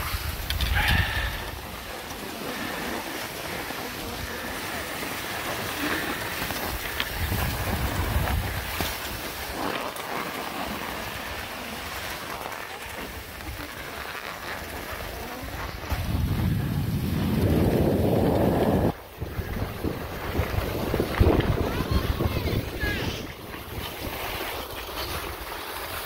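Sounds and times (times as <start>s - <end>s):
skis sliding over snow: 0.0s - 26.0s
wind rumbling on microphone: 0.0s - 26.0s.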